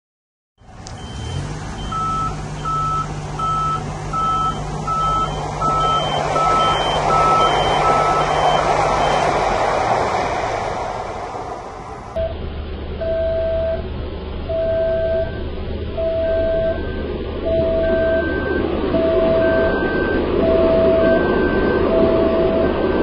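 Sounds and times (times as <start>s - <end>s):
steady low hum: 0.6s - 23.0s
train passing: 0.7s - 12.3s, 16.7s - 23.0s
short electronic warning beeps: 1.0s - 9.3s.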